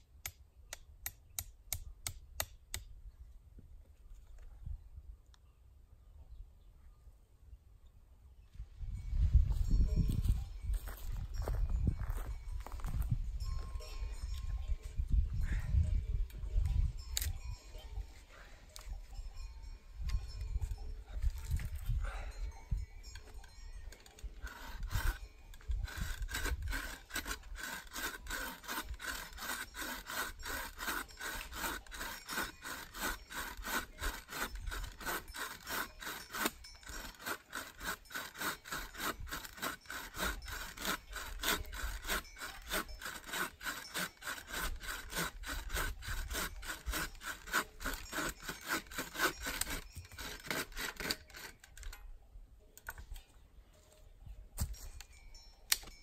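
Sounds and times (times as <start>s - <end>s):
hand saw cutting wood: 23.4s - 52.0s.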